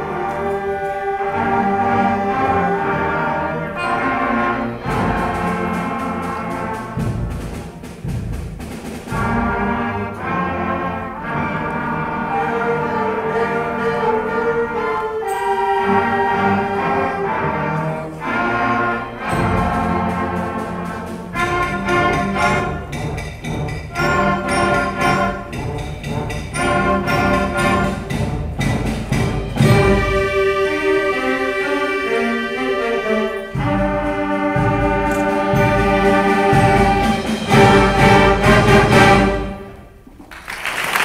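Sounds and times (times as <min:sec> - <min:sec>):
concert band playing: 0:00.0 - 0:40.1.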